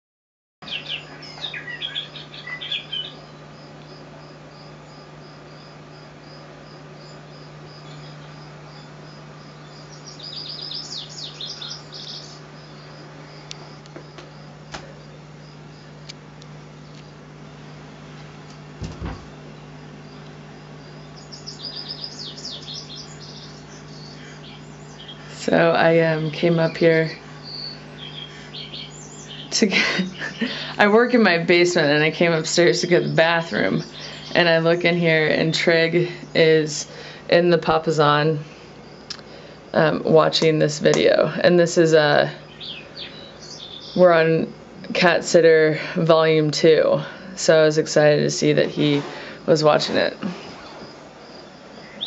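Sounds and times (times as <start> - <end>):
recorded birdsong through speaker: 0.6 - 17.8, 19.0 - 52.0
steady low hum: 0.6 - 52.0
short knocks: 18.8 - 19.4.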